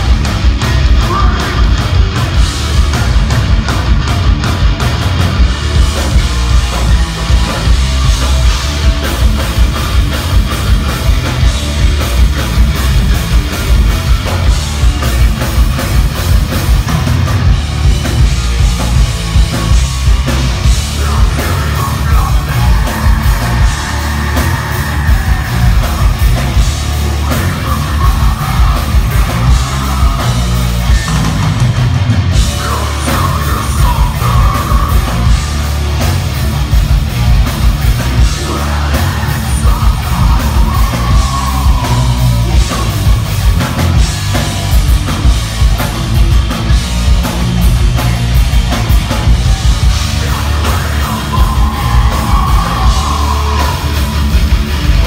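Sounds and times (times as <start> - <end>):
heavy metal band playing live: 0.0 - 55.0
person singing: 0.6 - 1.8, 20.7 - 31.3, 32.4 - 35.5, 38.2 - 43.2, 49.4 - 54.4.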